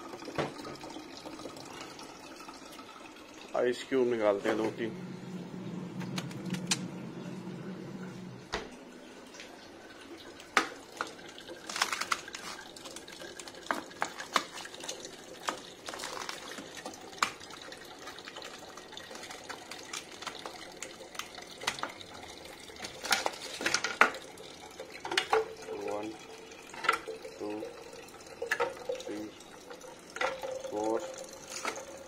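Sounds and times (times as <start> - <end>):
ice cubes clinking: 11.0 - 17.4, 22.8 - 24.2, 30.2 - 32.0.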